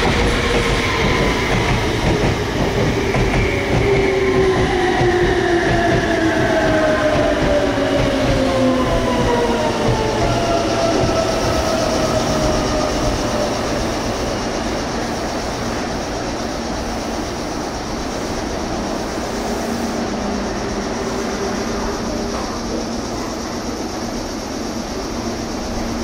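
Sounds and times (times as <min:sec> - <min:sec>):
electric train motor whine: 0:00.0 - 0:15.1
wheels rumbling on rail: 0:00.0 - 0:26.0.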